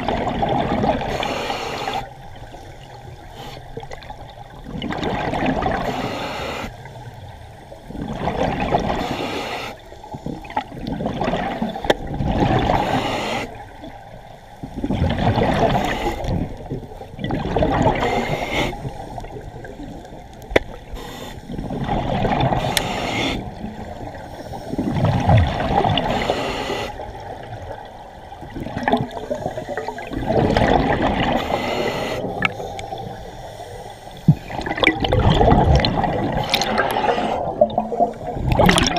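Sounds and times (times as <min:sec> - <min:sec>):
regulator inhalations: 0:01.1 - 0:02.1, 0:05.8 - 0:06.7, 0:12.8 - 0:13.6, 0:18.0 - 0:19.2, 0:20.9 - 0:21.6, 0:22.6 - 0:23.5, 0:26.0 - 0:27.0, 0:31.4 - 0:34.5
bubbly regulator exhalations: 0:34.3 - 0:38.9.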